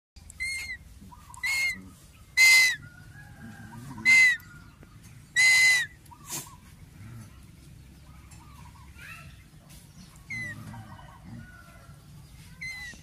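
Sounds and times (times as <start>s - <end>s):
bird of prey screaming: 0.4s - 1.8s, 2.4s - 2.8s, 4.0s - 4.4s, 5.4s - 5.9s.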